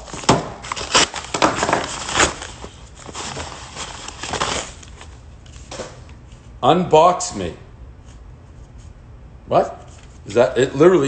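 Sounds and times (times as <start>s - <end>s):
padded envelope rustling: 0.0s - 5.7s.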